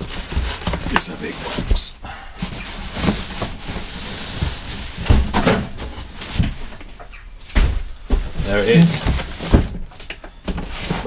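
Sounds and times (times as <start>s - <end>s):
cardboard scraping and rustling: 0.0s - 11.0s.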